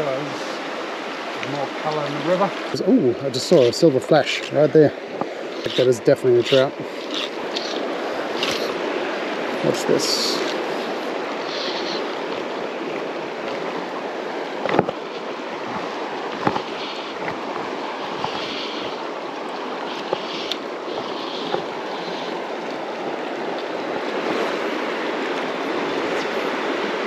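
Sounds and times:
river water rushing: 0.0s - 27.0s.

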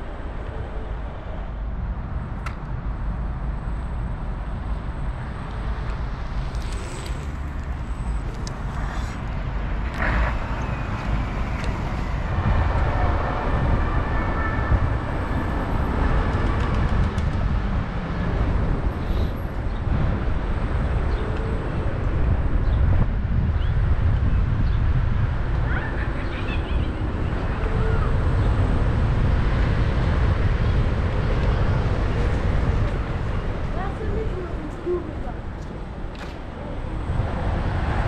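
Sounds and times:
faint steady whine: 0.0s - 16.6s
city traffic noise: 0.0s - 38.0s
wind on microphone: 4.5s - 38.0s.

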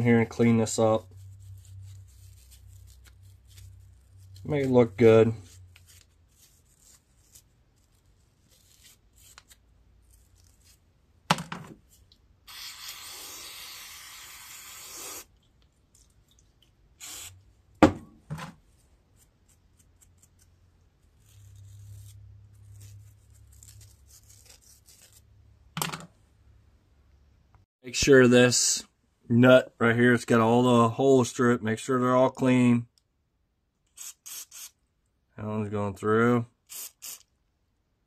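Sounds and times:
aerosol can spraying hiss: 12.5s - 15.3s, 17.0s - 17.4s, 36.7s - 37.2s.

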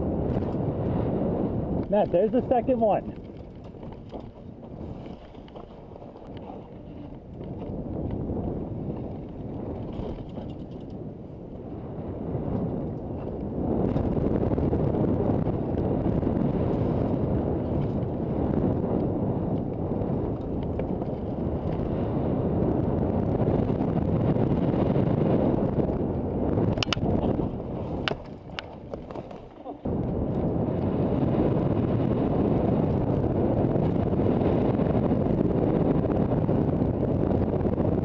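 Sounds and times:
bike tyres rolling on dirt: 0.0s - 38.0s
wind buffeting microphone: 0.0s - 38.0s.

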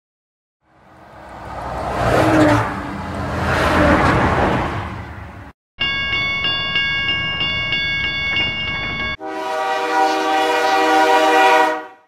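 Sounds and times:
passing train rushing: 0.7s - 5.5s, 6.3s - 12.0s
level crossing bell ringing: 5.8s - 9.2s
train horn blast: 9.2s - 12.0s.

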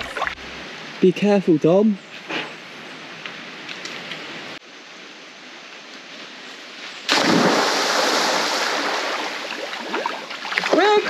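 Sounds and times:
loud splash into water: 7.1s - 10.8s
water churning: 7.1s - 11.0s.

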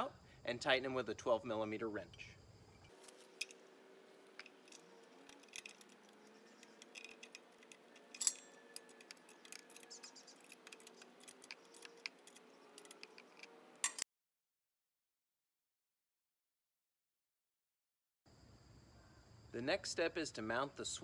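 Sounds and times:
wrench clicking on bolts: 4.2s - 14.0s
sharp metal clack: 4.3s - 14.0s.

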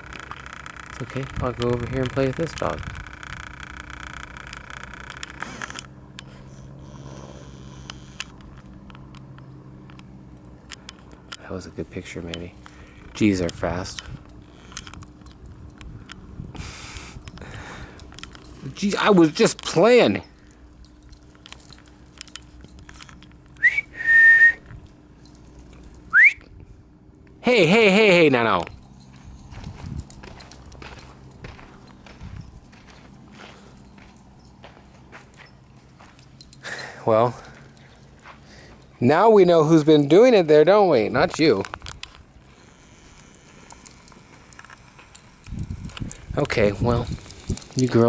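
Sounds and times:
small clicks: 0.0s - 6.3s
steady low hum: 0.0s - 48.0s
light jingling: 6.2s - 26.2s, 27.1s - 48.0s
person whistling: 23.6s - 24.7s, 26.1s - 26.5s.

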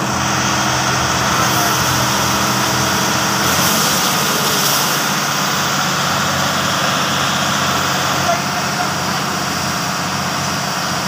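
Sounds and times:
diesel engine driving water pump: 0.0s - 11.0s
fire burning: 0.0s - 11.0s
water jet rushing: 0.0s - 11.0s.

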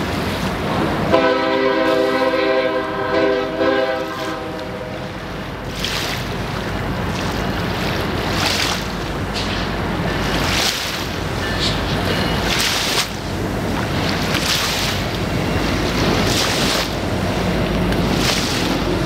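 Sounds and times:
locomotive air horn: 1.1s - 5.3s.

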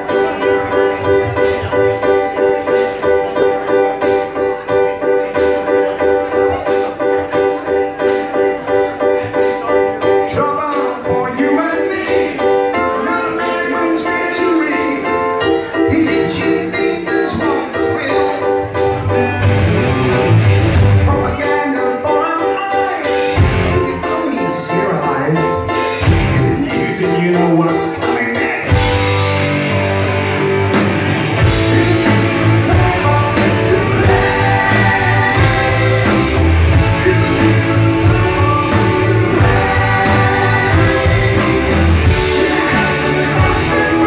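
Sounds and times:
live rock band playing: 0.0s - 44.0s
person singing lead vocals: 9.4s - 19.2s, 20.7s - 29.8s, 31.4s - 44.0s.

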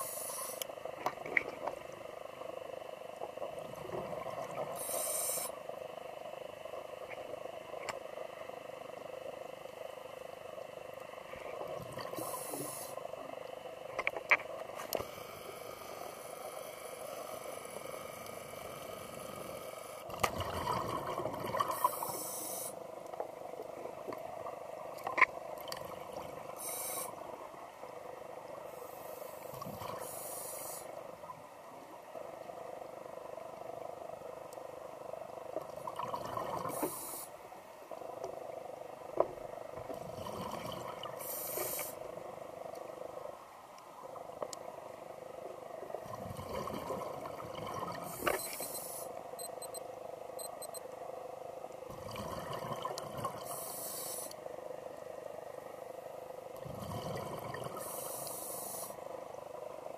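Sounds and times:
steady underwater hiss: 0.0s - 59.9s
exhaled bubbles hissing: 3.7s - 5.6s, 11.8s - 13.0s, 15.0s - 22.8s, 25.7s - 27.2s, 35.8s - 37.4s, 40.0s - 42.1s, 46.0s - 49.1s, 51.9s - 54.4s, 56.6s - 59.0s.

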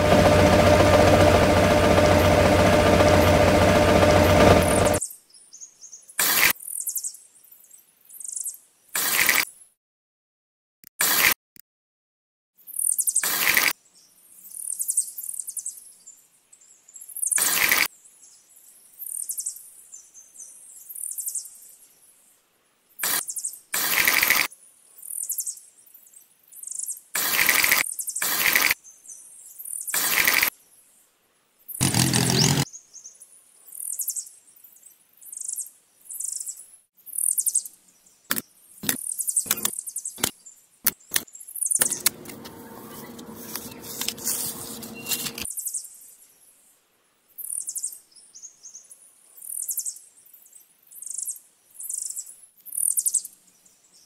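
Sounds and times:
sharp clicks: 38.3s - 40.3s, 40.9s - 42.6s
trowel scraping wet mortar: 43.1s - 45.4s.

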